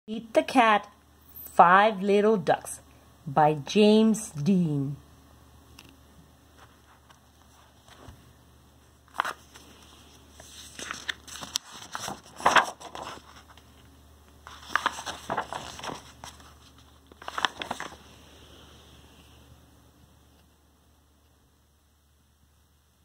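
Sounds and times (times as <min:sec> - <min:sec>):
paper pages rustling and turning: 0:06.5 - 0:08.2, 0:09.0 - 0:18.2.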